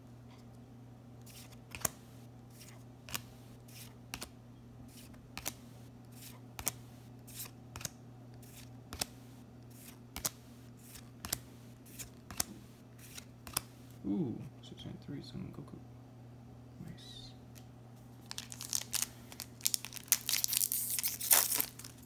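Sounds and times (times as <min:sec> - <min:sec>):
steady low hum: 0:00.0 - 0:22.0
trading cards snapping: 0:01.3 - 0:02.0, 0:02.6 - 0:04.3, 0:05.0 - 0:05.6, 0:06.2 - 0:13.7, 0:18.3 - 0:22.0.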